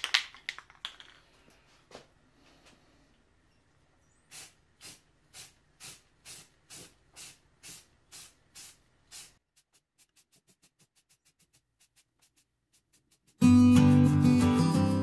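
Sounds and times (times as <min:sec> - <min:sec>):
spray can bursts: 0:04.3 - 0:13.4.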